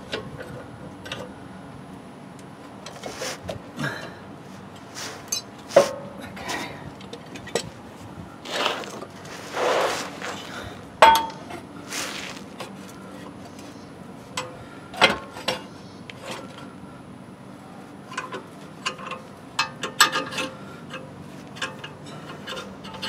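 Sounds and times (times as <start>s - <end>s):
metal clamp clinking on steel: 11.0s - 11.6s.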